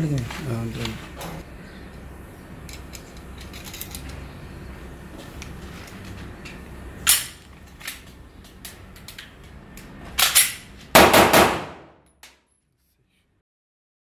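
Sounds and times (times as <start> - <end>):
pistol shots: 10.3 - 12.0.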